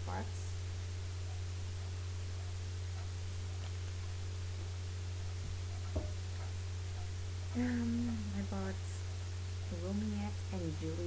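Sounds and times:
low electrical hum: 0.0s - 11.0s
white noise hiss: 0.0s - 11.0s
faint knocks: 5.5s - 6.2s.

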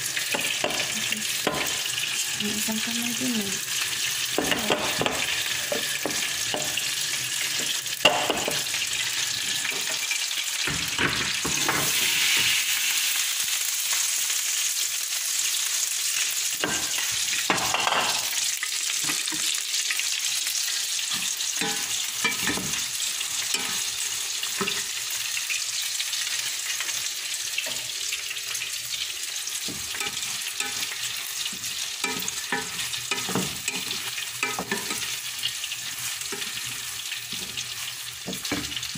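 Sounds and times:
rice sizzling in butter: 0.0s - 38.9s.

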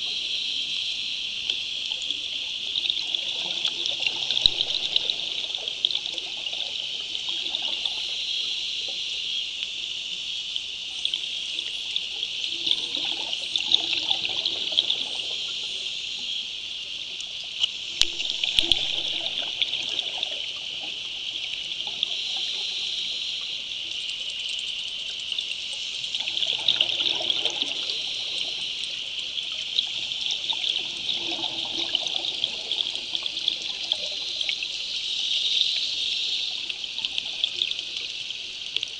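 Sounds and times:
underwater crackling hiss: 0.0s - 38.9s
regulator bubbles surging: 2.5s - 8.3s, 11.0s - 15.8s, 17.9s - 23.0s, 26.0s - 37.8s.

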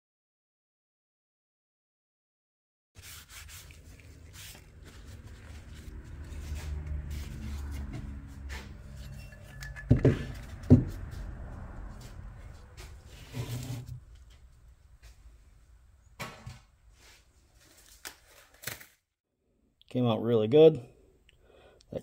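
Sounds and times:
low rumble: 5.0s - 16.0s.

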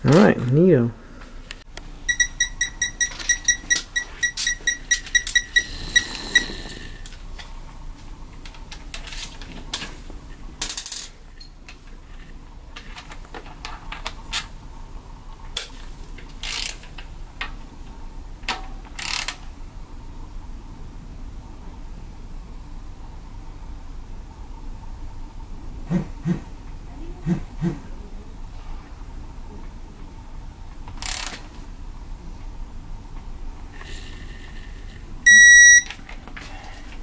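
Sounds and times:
ratchet wrench clicking: 16.4s - 16.8s, 19.0s - 19.4s, 31.0s - 31.4s.

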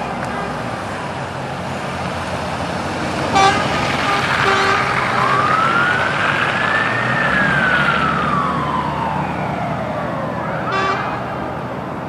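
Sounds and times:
low engine rumble: 0.0s - 12.0s
fire truck siren wailing: 2.4s - 12.0s
short sharp horn blast: 3.3s - 4.9s, 10.7s - 11.2s.

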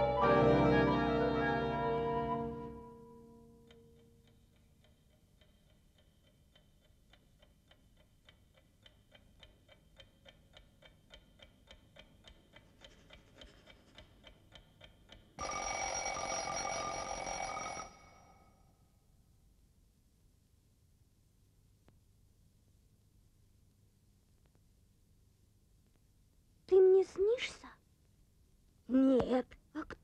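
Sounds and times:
mechanical alarm clock ticking: 3.6s - 18.1s
alarm clock bell ringing: 15.4s - 18.6s.

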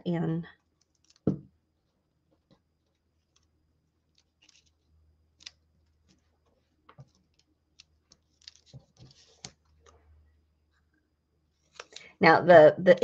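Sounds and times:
paper rustling: 4.1s - 4.8s, 5.4s - 10.0s.

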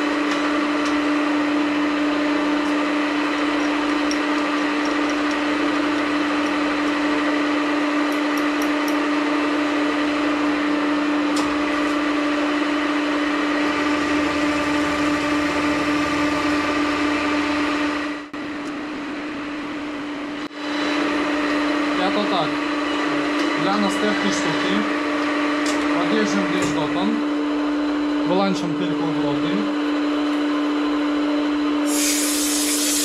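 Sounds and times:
milling machine cutting metal: 13.4s - 18.2s, 31.9s - 33.0s.

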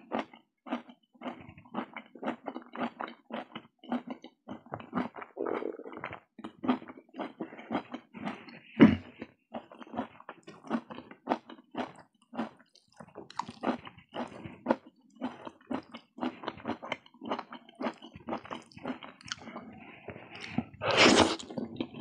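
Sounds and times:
chewing with wet mouth smacks: 0.0s - 22.0s.

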